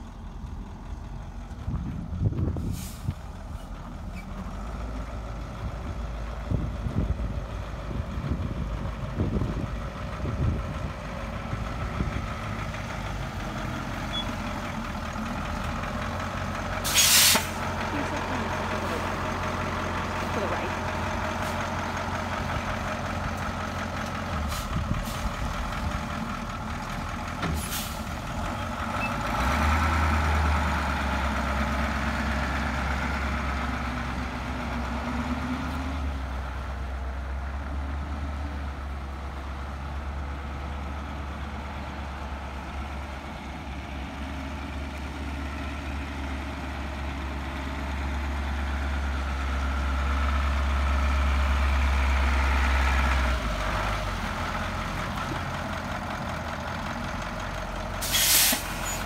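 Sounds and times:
truck engine running: 0.0 - 59.0
short sharp clicks or hisses: 16.9 - 17.6, 58.0 - 59.0.

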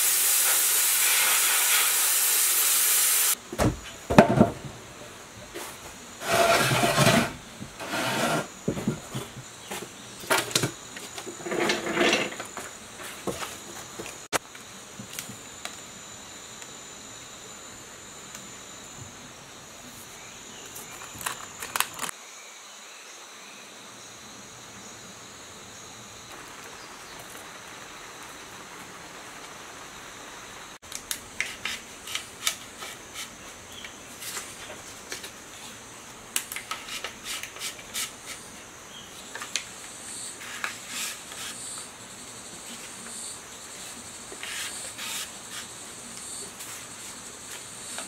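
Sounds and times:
insect chirring: 38.7 - 48.0.

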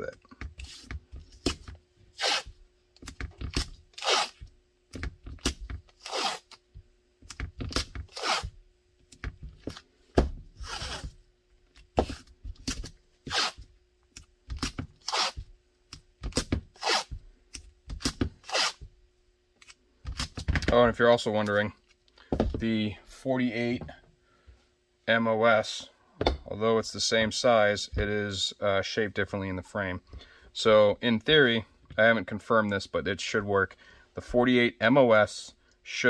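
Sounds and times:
tape ripping: 2.2 - 2.5, 3.5 - 4.4, 5.4 - 6.6, 7.7 - 8.5, 10.6 - 11.1, 12.0 - 13.6, 14.6 - 15.4, 16.3 - 17.2, 18.0 - 18.8.

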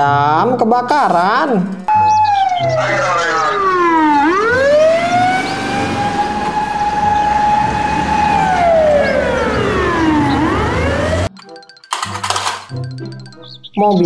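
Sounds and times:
fire truck siren wailing: 1.9 - 11.4
low engine rumble: 3.1 - 11.3.

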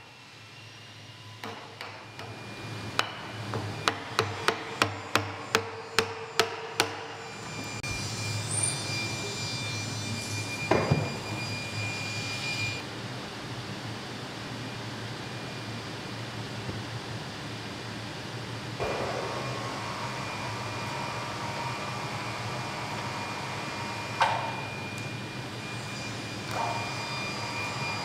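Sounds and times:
faint high whine: 0.0 - 12.9, 18.8 - 28.0
mallet striking chisel: 3.8 - 7.1.

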